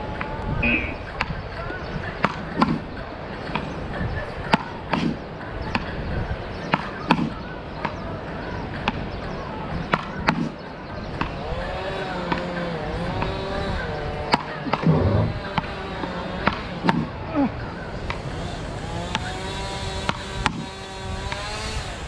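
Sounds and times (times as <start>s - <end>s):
wavering pitched sound: 0.6s - 1.1s.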